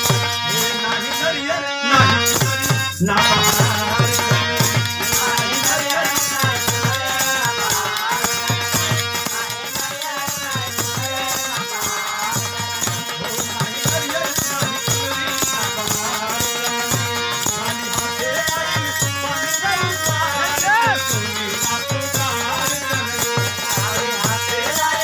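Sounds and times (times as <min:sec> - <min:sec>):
man singing: 0:00.0 - 0:25.0
hand drum beat: 0:12.3 - 0:25.0.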